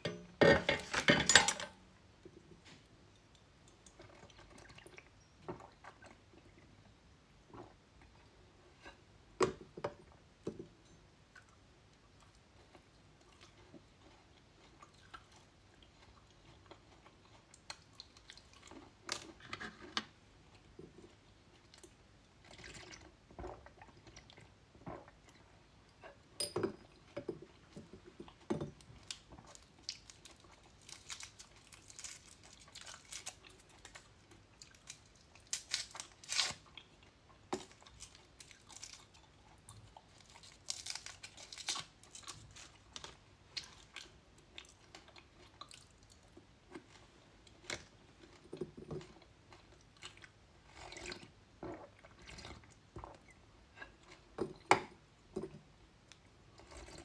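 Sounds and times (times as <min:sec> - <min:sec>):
crunching and chewing candy: 0:28.0 - 0:54.7, 0:56.1 - 0:57.0.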